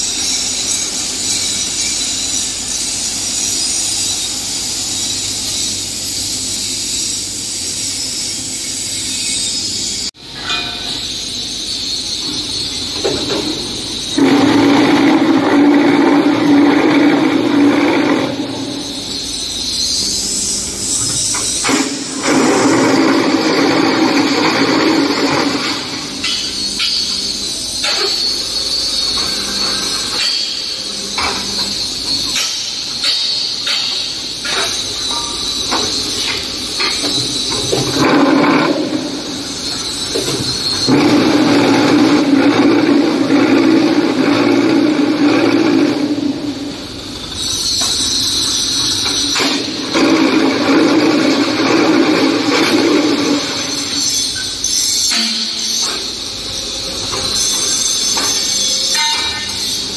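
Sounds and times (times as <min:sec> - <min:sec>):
machine hiss: 0:00.0 - 0:59.9
sharp metal clanks and knocks: 0:10.3 - 0:11.2, 0:12.2 - 0:19.2, 0:20.9 - 0:44.6, 0:47.4 - 0:56.3, 0:57.0 - 0:59.9.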